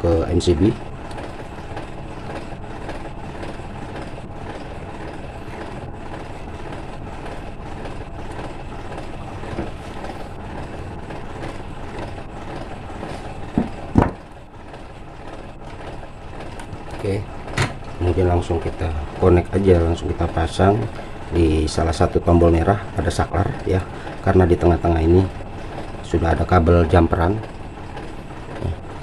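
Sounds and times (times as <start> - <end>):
short knocks: 13.5 - 14.2.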